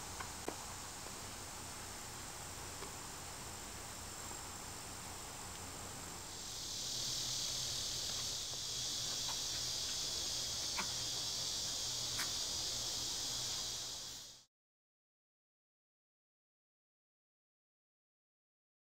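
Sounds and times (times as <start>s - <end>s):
insects droning: 0.0s - 14.5s.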